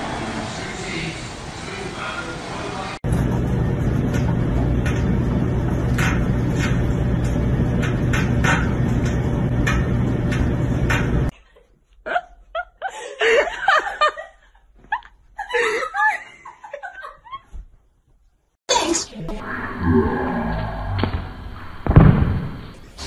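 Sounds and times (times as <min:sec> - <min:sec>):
loud steady humming noise: 0:00.0 - 0:11.3
woman laughing: 0:11.4 - 0:17.6.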